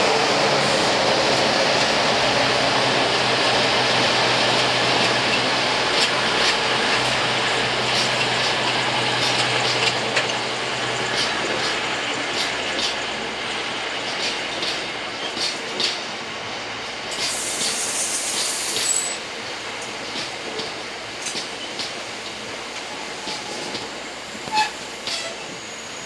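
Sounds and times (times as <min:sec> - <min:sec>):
diesel locomotive drone: 0:00.0 - 0:26.0.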